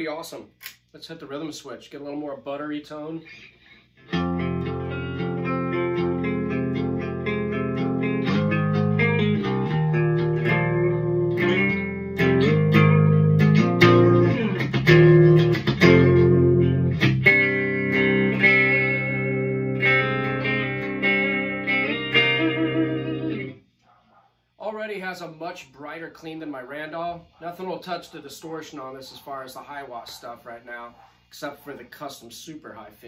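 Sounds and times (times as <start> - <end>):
clean electric guitar chords: 4.0 - 23.6.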